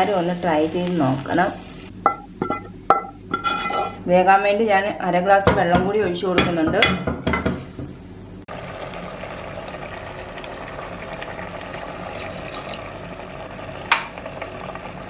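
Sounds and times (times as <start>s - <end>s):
water trickling into a pot: 8.5s - 15.0s.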